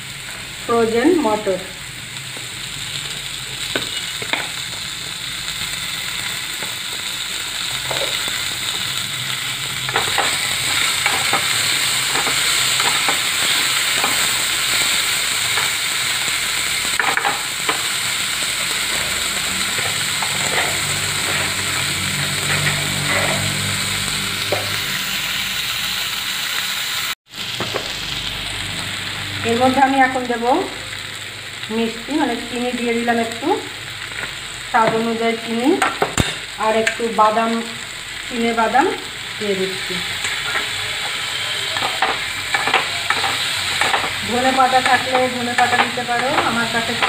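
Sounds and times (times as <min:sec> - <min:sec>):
vegetables sizzling in oil: 0:00.0 - 0:47.0
wooden spatula scraping pan: 0:18.6 - 0:23.6.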